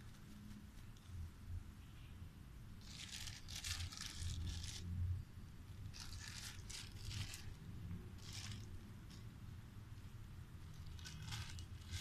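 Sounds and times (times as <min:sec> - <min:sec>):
plastic bag crinkling and tearing: 0:02.8 - 0:04.9, 0:05.8 - 0:09.3, 0:10.7 - 0:12.0.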